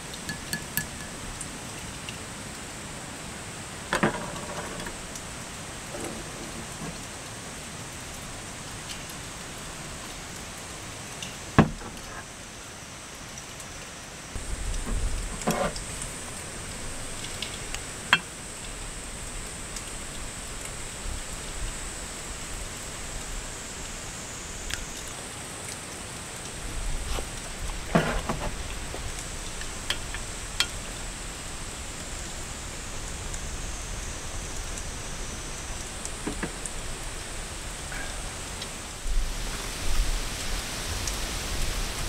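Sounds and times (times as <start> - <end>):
rain on a tarp: 0.0 - 42.0
wind rumble on microphone: 14.4 - 17.8.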